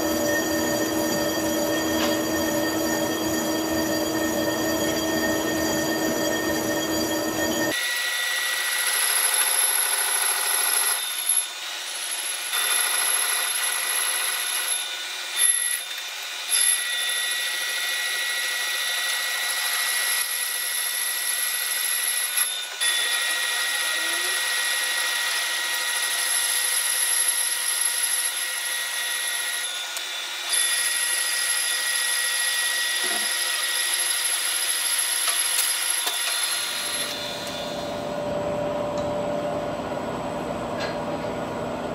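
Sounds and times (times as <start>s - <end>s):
lathe tool squealing on metal: 0.0s - 8.8s, 13.8s - 38.1s.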